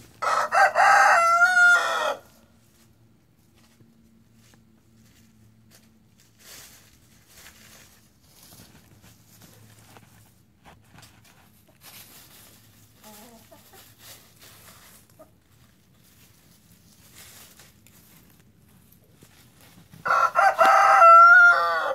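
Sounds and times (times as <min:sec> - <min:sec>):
chickens scratching in dry leaves: 0:00.0 - 0:21.9
rooster crowing: 0:00.2 - 0:02.4, 0:20.0 - 0:21.9
chicken clucking softly: 0:12.9 - 0:15.6.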